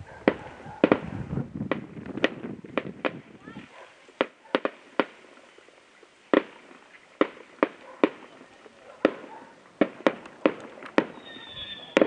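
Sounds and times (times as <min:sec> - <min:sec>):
firework shells bursting: 0:04.2 - 0:12.0.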